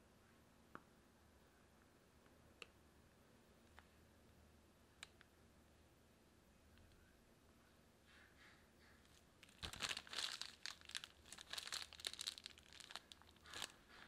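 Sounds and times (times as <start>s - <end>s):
plastic bag crinkling: 9.1s - 14.0s.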